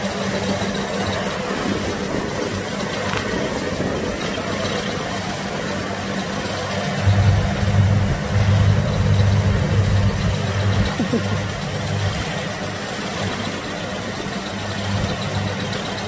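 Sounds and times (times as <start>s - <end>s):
combine harvester engine din: 0.0s - 16.0s
deep pulsing hum: 6.9s - 15.9s.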